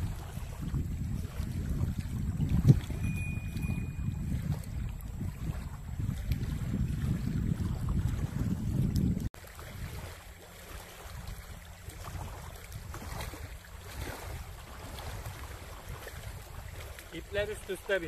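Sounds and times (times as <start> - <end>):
low wind rumble: 0.0 - 18.0
wind buffeting microphone: 0.0 - 18.0.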